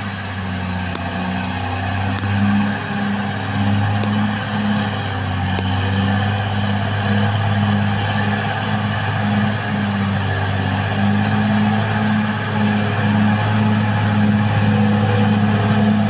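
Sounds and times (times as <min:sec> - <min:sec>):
bulldozer diesel engine droning: 0:00.0 - 0:16.0
faint clicks: 0:00.8 - 0:01.2.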